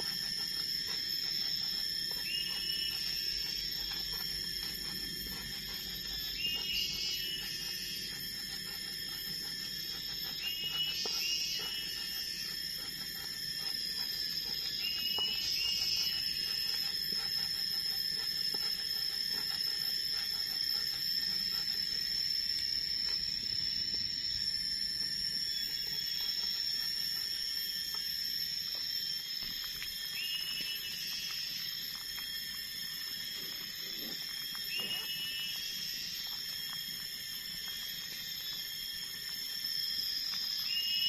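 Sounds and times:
insects droning: 0.0s - 41.0s.

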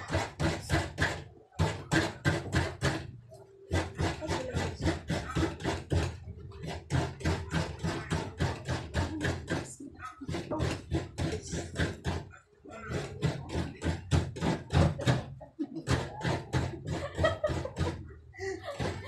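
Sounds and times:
coconut scraping on grater: 0.0s - 19.0s.

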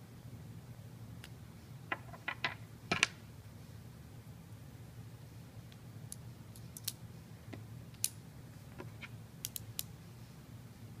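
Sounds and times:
pen parts clicking together: 9.4s - 9.9s.

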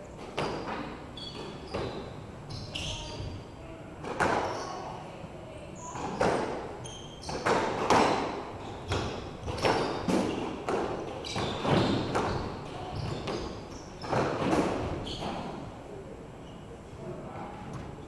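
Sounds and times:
racket striking squash ball: 4.0s - 4.6s, 6.0s - 15.5s
ball hitting court walls: 4.0s - 4.7s, 6.0s - 15.5s.

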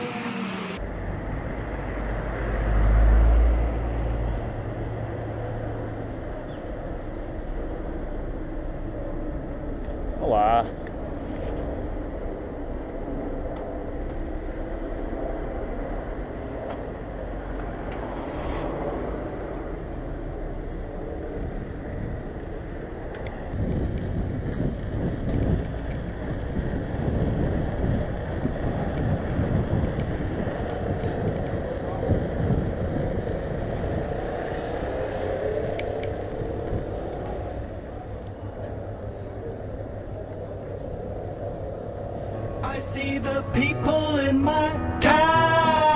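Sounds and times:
street traffic engines and tyres: 0.0s - 45.9s
thin high squeal: 7.0s - 7.5s
bicycle tyres rumbling on cobblestones: 19.6s - 42.4s.

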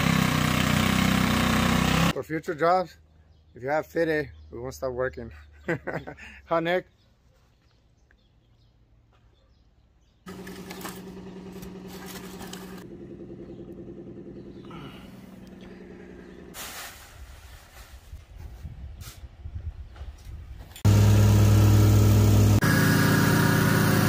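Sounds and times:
engine running: 0.0s - 2.2s, 10.3s - 16.6s, 20.8s - 24.0s.

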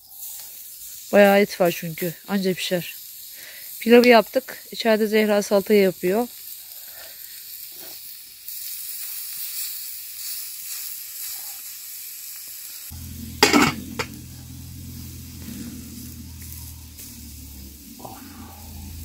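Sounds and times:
steaks sizzling: 0.0s - 19.0s
low hum: 13.0s - 18.1s.

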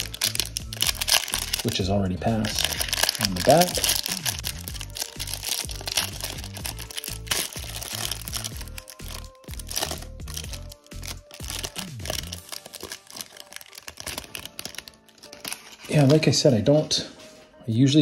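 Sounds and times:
background music with bass line: 0.0s - 12.6s
cellophane wrapper crinkling: 0.0s - 16.3s.

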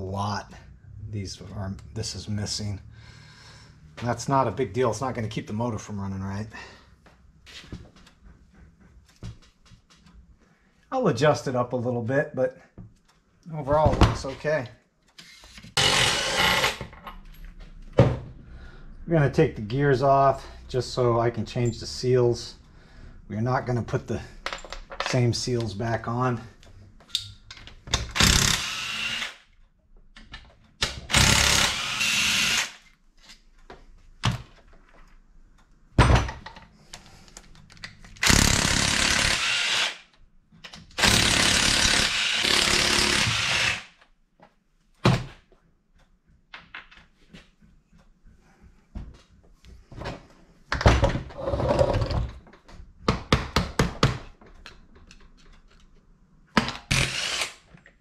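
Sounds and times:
impact wrench bursts: 15.2s - 16.8s, 28.1s - 29.5s, 31.0s - 32.8s, 38.2s - 40.1s, 41.0s - 44.0s, 56.9s - 57.7s.

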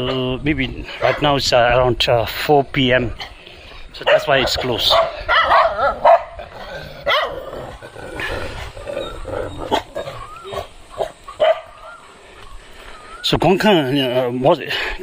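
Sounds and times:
dog barking: 1.0s - 1.3s, 4.0s - 6.4s, 7.0s - 7.4s, 10.6s - 11.9s.

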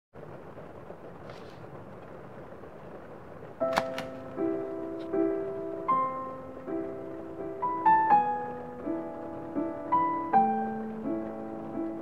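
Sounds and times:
soft piano music: 3.5s - 12.0s.

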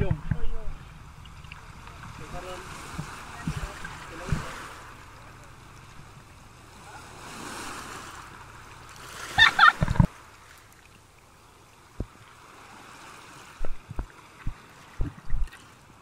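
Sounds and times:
woman laughing: 9.2s - 10.0s.

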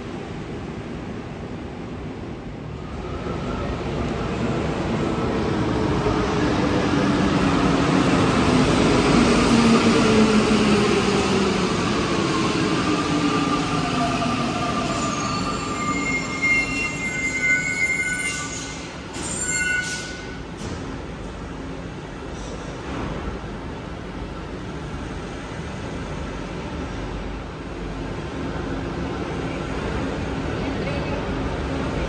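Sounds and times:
brake and wheel squeals: 15.0s - 20.4s.

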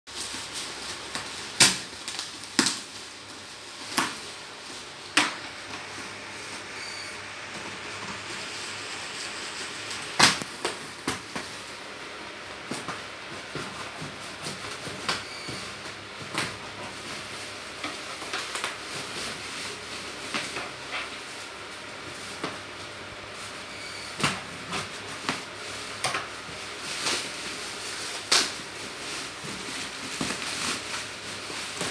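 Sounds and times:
bubble-wrap popping: 0.1s - 4.4s, 25.2s - 31.9s
plastic packaging crinkling: 0.1s - 11.9s, 16.5s - 23.5s, 24.8s - 31.9s.

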